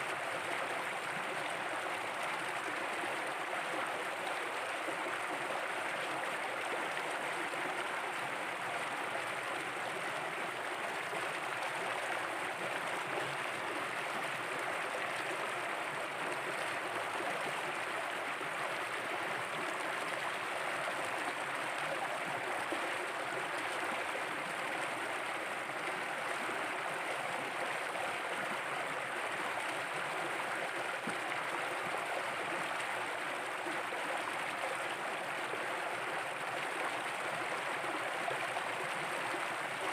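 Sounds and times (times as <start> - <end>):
stream flowing over rocks: 0.0 - 39.9.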